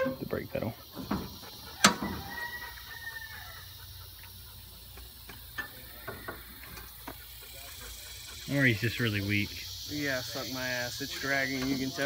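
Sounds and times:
high brake squeal: 0.0 - 0.7.

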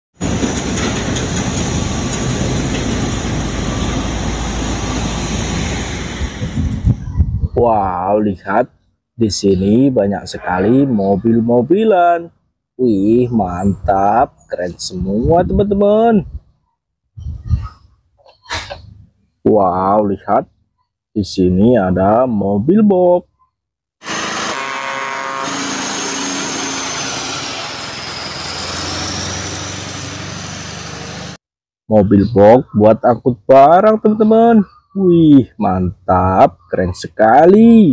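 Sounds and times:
trucks driving past: 0.2 - 6.9, 24.1 - 31.4.

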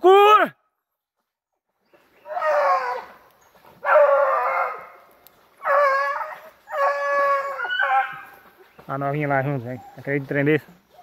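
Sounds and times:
hunting dog baying: 2.2 - 8.5.

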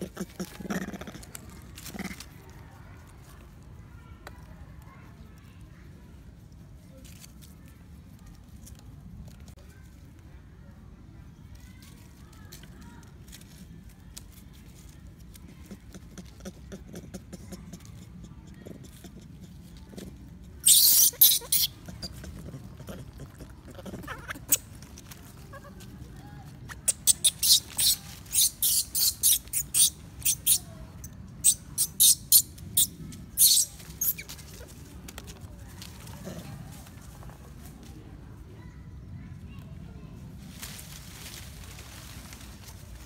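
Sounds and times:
monkey shrill squeals: 20.6 - 22.2, 26.7 - 30.6, 31.4 - 34.3.

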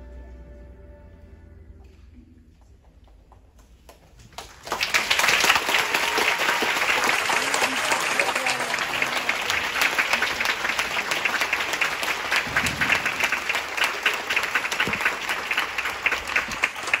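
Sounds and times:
audience applauding: 4.1 - 17.0.

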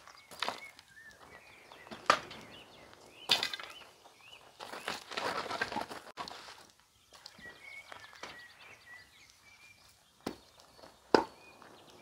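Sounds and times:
wood scraping and rustling: 0.0 - 8.4.

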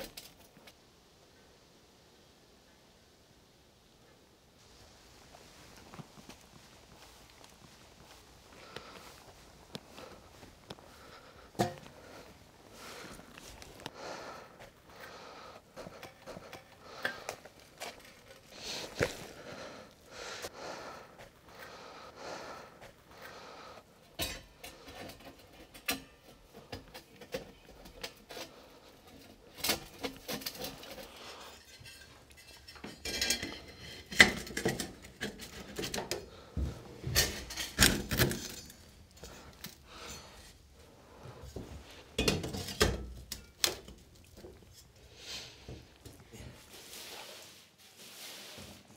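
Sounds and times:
metal pipes clinking and clanking: 11.5 - 12.0, 24.1 - 36.2, 37.0 - 40.6, 42.1 - 45.0.

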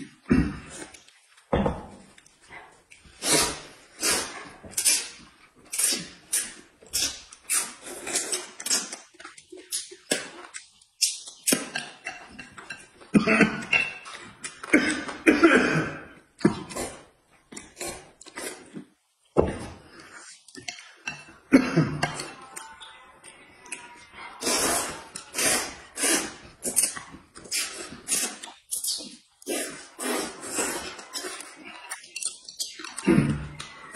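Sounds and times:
food chewing: 0.7 - 13.1
noodles slurped: 3.1 - 10.3, 24.3 - 33.9
chopsticks and dishes clinking: 11.6 - 14.7, 30.5 - 33.9.

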